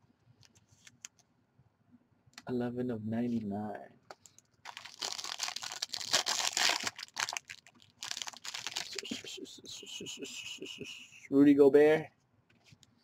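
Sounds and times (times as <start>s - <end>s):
plastic packaging crinkling: 4.2s - 9.2s.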